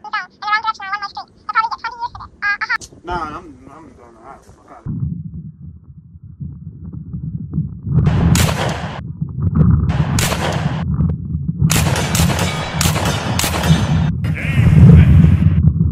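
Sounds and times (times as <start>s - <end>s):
low steady rumble: 3.0s - 15.9s
gunshots: 8.0s - 9.0s, 9.9s - 11.0s, 11.7s - 14.2s.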